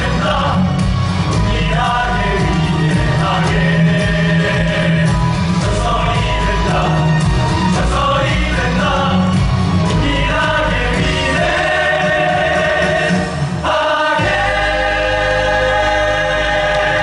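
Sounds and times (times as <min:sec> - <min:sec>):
cast singing together: 0:00.0 - 0:17.0
heavy bass: 0:00.0 - 0:17.0
loud backing music: 0:00.0 - 0:17.0.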